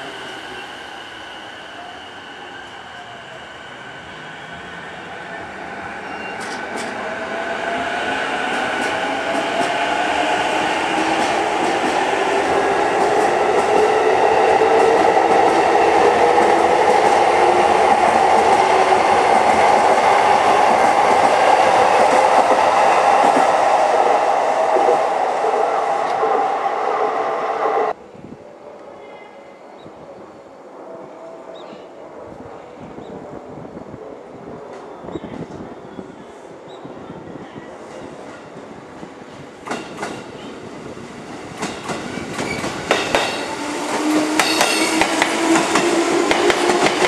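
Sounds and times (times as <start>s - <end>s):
train wheels rolling on rails: 0.0s - 28.0s, 37.8s - 47.0s.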